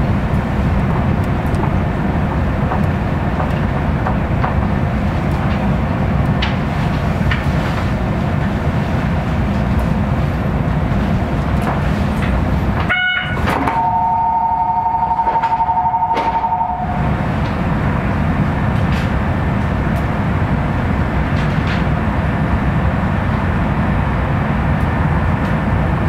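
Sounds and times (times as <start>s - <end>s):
monorail train rumbling: 0.0s - 26.0s
two-note tone: 12.9s - 17.0s.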